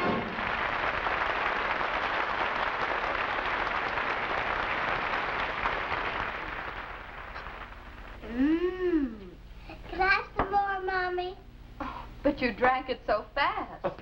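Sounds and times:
studio audience applauding: 0.0 - 8.2.

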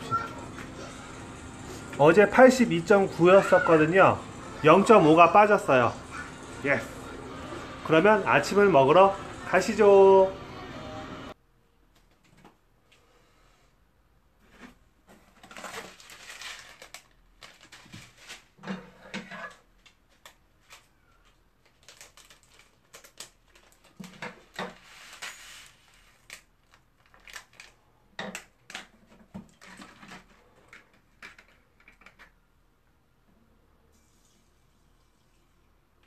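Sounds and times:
plastic packet rustling: 15.1 - 32.3.

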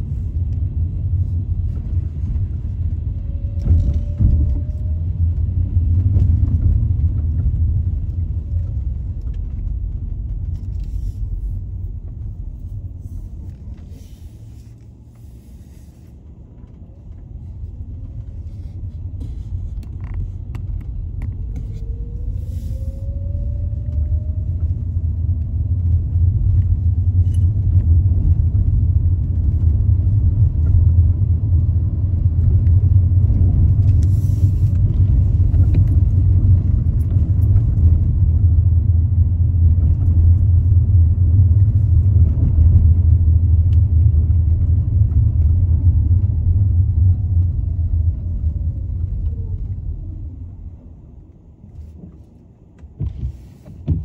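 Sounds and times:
faint whine: 0.0 - 28.3
car tyres and engine rumble: 0.0 - 54.0.

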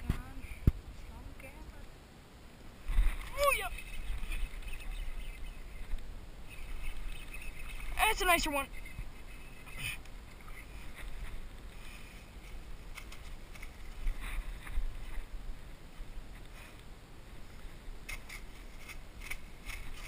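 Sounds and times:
wind rumble on microphone: 8.7 - 20.0.

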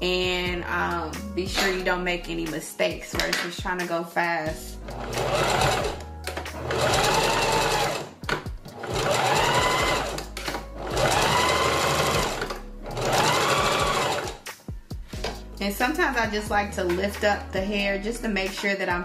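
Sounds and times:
sewing machine stitching: 4.8 - 8.1, 8.7 - 14.4.

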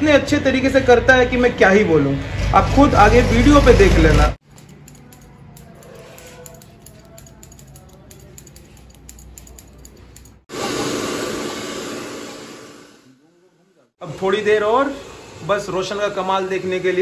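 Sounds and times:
scissors snipping hair: 4.4 - 10.4
hair dryer blowing: 10.5 - 13.1.

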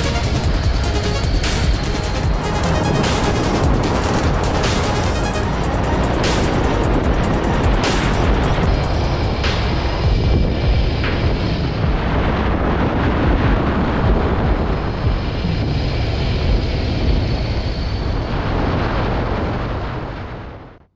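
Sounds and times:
motorcycle engine running: 0.0 - 12.2
wind buffeting microphone: 0.0 - 20.8.

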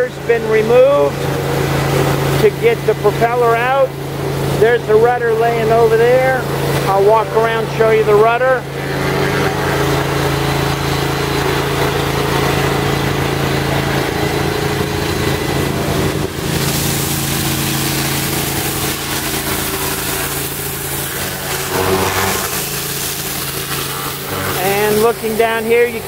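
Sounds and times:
pressure washer engine running: 0.0 - 26.0
high-pressure water spray hiss: 16.2 - 26.0.

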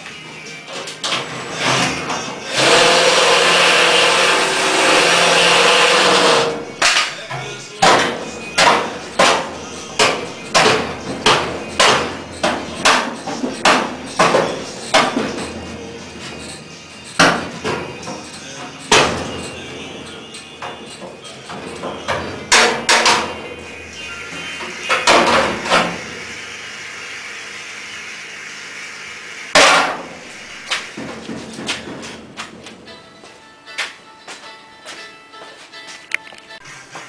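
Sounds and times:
hammer blows on sheet metal: 4.8 - 16.4, 18.9 - 23.6, 29.6 - 32.8.

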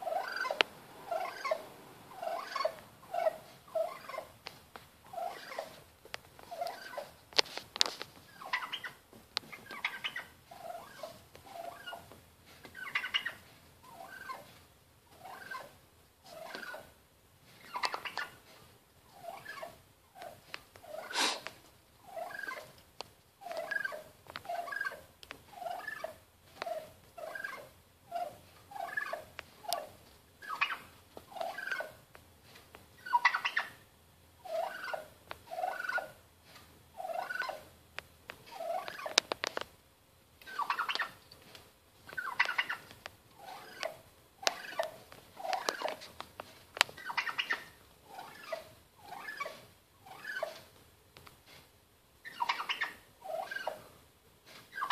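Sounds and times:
turkey calling: 0.0 - 4.4, 5.1 - 5.8, 6.5 - 7.2, 8.3 - 16.9, 17.6 - 18.4, 19.1 - 22.8, 23.4 - 32.0, 33.0 - 33.8, 34.4 - 36.2, 37.0 - 37.8, 38.5 - 39.3, 40.4 - 41.2, 42.0 - 46.1, 46.8 - 50.7, 52.2 - 54.0.

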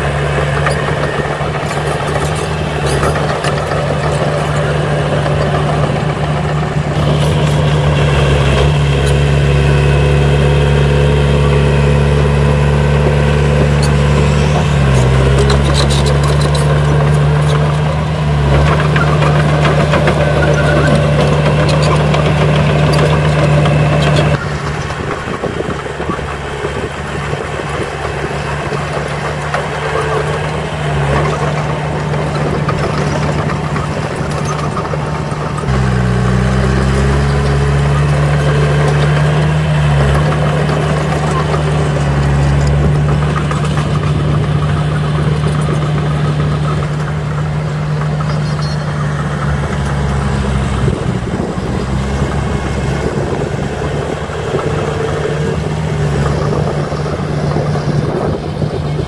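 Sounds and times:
bulldozer diesel engine under load: 0.0 - 59.0
metal clanks: 0.5 - 9.3.

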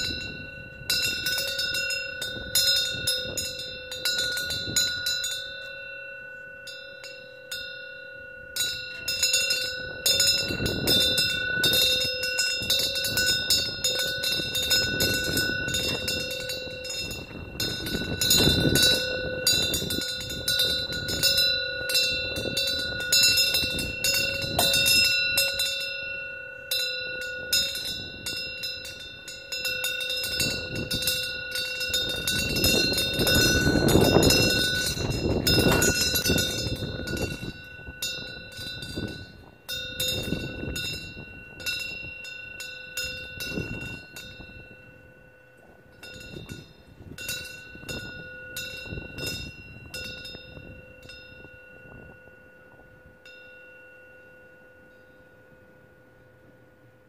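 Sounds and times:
wind gusts on microphone: 0.0 - 5.3, 8.6 - 25.6, 30.2 - 53.2
metal wind bell ringing: 0.0 - 57.0.

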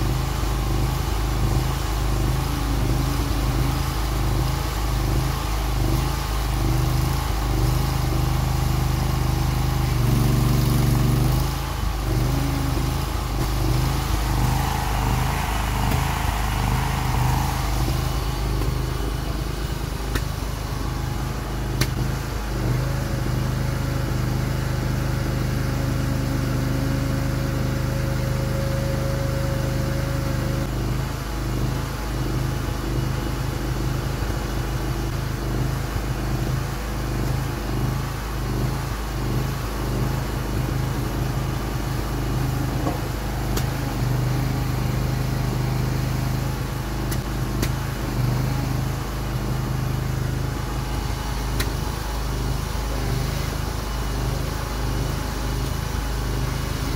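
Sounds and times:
small engine running: 0.0 - 56.9
thin steady whine: 0.0 - 56.9.

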